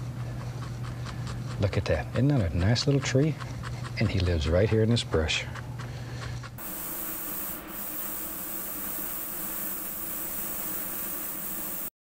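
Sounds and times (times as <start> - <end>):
extractor fan running: 0.0 - 11.9
airbrush spraying hiss: 6.6 - 12.0.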